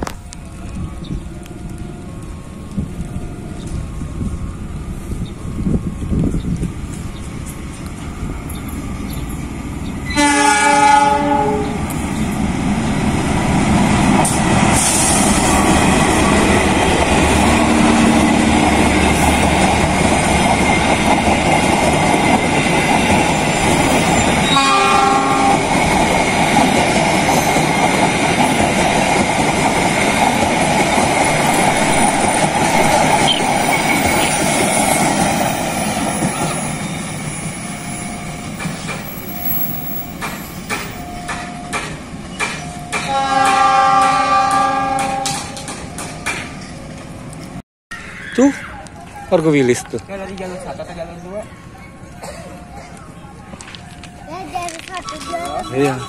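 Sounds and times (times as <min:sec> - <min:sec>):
train horn: 0:10.1 - 0:11.8, 0:17.4 - 0:19.2, 0:24.4 - 0:25.8, 0:43.0 - 0:45.6
train wheels clattering on rails: 0:11.7 - 0:47.6, 0:52.2 - 0:56.0.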